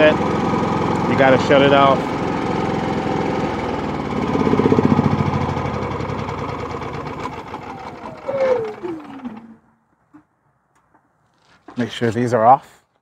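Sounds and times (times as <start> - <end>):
generator engine running: 0.0 - 9.9.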